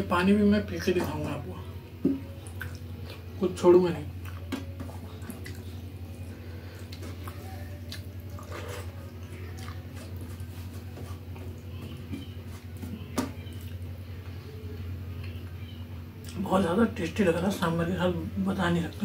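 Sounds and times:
steady low hum: 0.0s - 19.0s
soft wet squelches: 2.0s - 3.4s, 4.1s - 16.4s.

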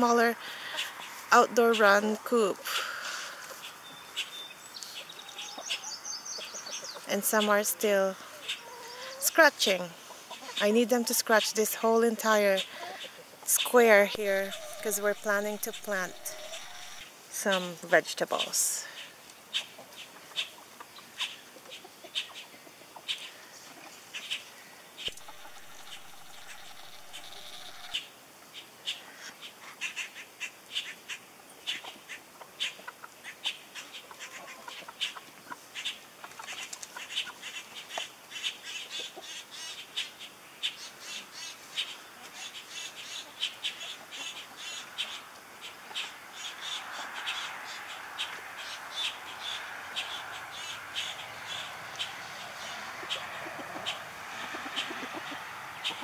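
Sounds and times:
chickens scratching and pecking soil: 0.2s - 28.0s, 29.1s - 39.6s, 41.1s - 56.0s
bird calls: 2.9s - 7.6s, 12.6s - 17.7s, 18.4s - 35.2s, 35.8s - 56.0s.

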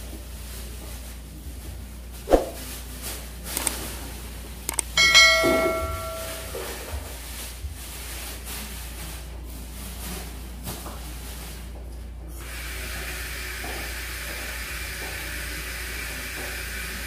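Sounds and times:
low steady hum: 0.0s - 7.4s
sharp clicks: 4.7s - 4.9s
metal kitchenware clanking: 5.0s - 7.0s.

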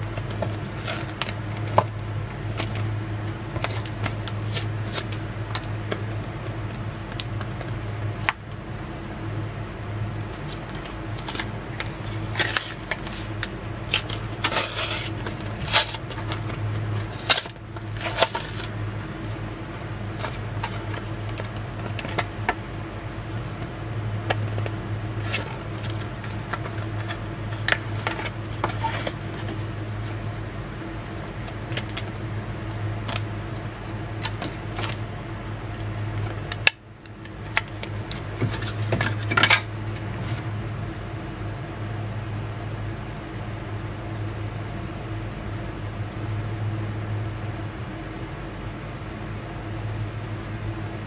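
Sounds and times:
plastic packaging clicking and rustling: 0.0s - 8.9s, 10.0s - 18.8s, 20.1s - 22.6s, 24.3s - 30.2s, 31.1s - 32.2s, 34.2s - 35.0s.

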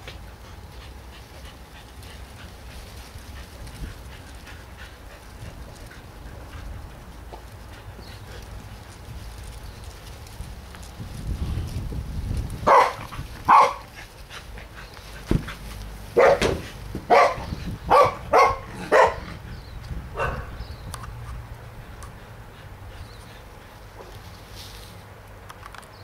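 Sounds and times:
dog barking: 12.7s - 13.8s, 16.2s - 19.3s, 20.2s - 20.6s
sharp thump: 15.3s - 15.6s, 16.2s - 17.1s.

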